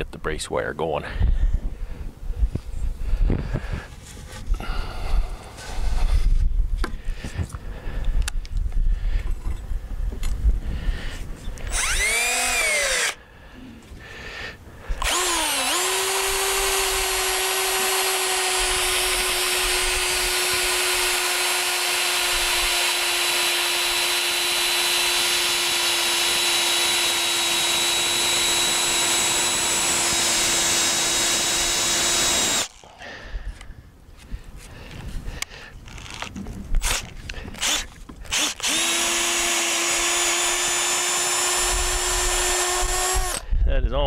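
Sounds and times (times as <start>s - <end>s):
power drill boring into wood: 11.6s - 13.2s, 15.0s - 32.9s, 35.9s - 43.5s.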